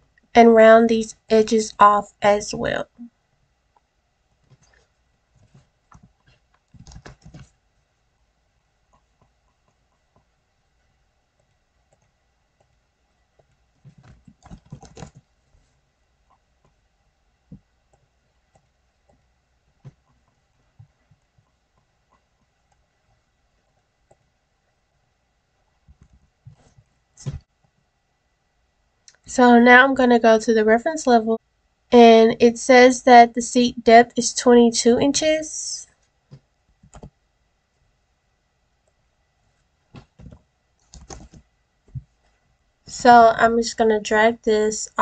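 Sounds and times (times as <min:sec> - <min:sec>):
computer mouse clicks: 0:03.8 - 0:07.6, 0:13.4 - 0:15.3, 0:36.3 - 0:37.2, 0:40.0 - 0:42.0
keyboard typing: 0:04.4 - 0:07.6, 0:11.3 - 0:15.3, 0:36.8 - 0:37.2, 0:40.0 - 0:41.5.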